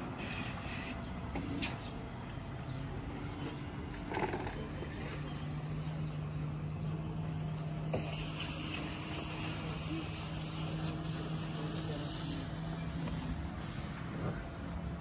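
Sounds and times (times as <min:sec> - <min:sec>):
low engine hum: 0:00.0 - 0:15.0
outdoor background noise: 0:00.0 - 0:15.0
loud hiss: 0:07.9 - 0:14.7.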